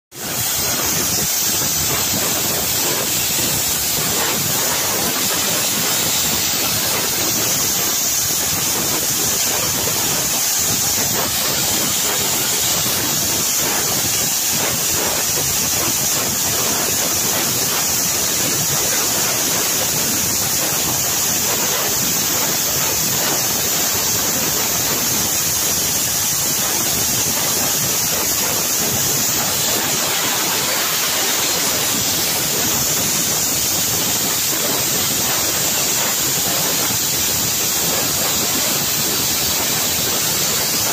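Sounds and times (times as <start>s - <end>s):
steam hissing from locomotive: 0.1s - 40.9s.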